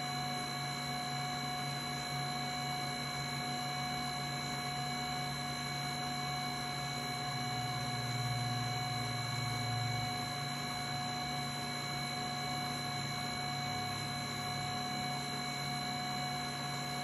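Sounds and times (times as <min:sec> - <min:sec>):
fan hum with whining tones: 0:00.0 - 0:17.0.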